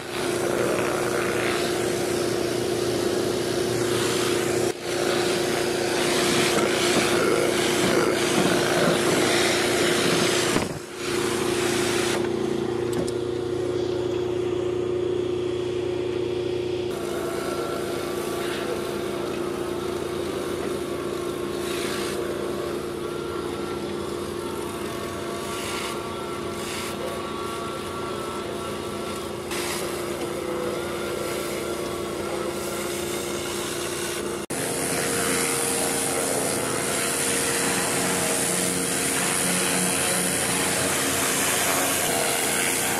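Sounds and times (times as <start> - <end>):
water jets hissing on roof slates: 0.0 - 12.2, 32.5 - 42.9
pressure washer motor humming: 0.0 - 42.9.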